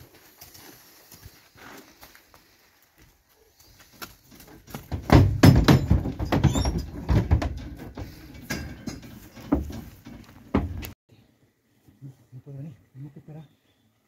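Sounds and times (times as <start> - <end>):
hooves clattering in a trailer: 3.6 - 11.0.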